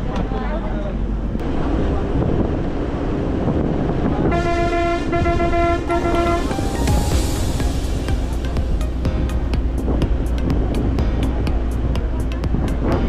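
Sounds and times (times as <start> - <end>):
traffic noise: 0.0 - 13.0
vehicle horn honking: 4.3 - 6.9.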